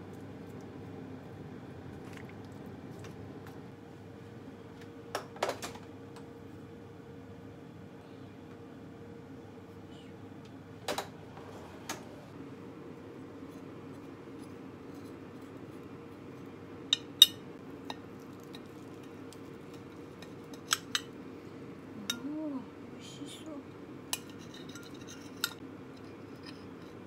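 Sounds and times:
knife clinking on glass dish: 24.2 - 25.6.

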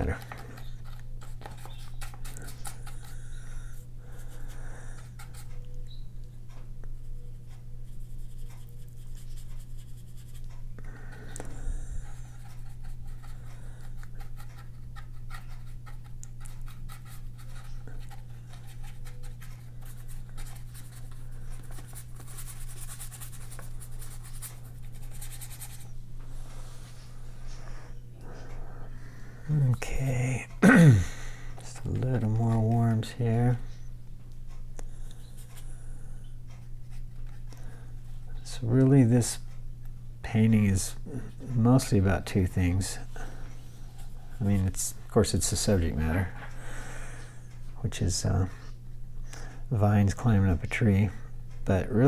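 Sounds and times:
steady low hum: 0.0 - 52.0
paintbrush scratching on paper: 7.8 - 10.6, 11.6 - 26.0.

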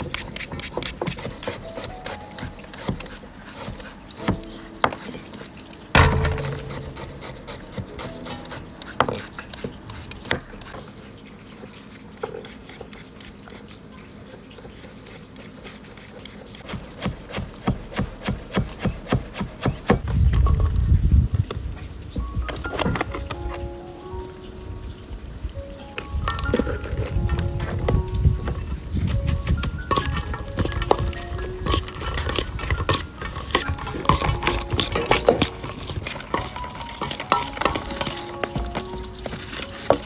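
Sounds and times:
utensil scraping and tapping: 0.0 - 11.0, 26.0 - 40.0.

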